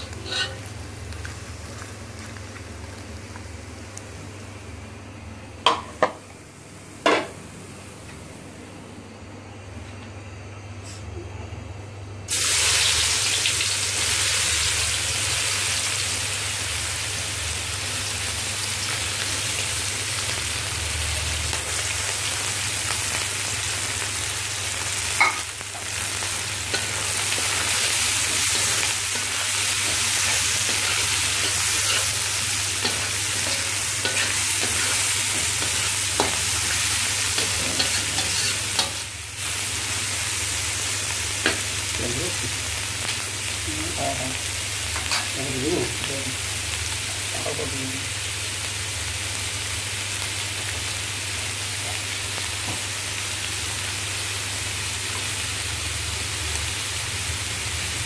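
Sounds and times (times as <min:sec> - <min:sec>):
vegetables sizzling in hot oil: 0:00.0 - 0:06.4, 0:12.3 - 0:58.0.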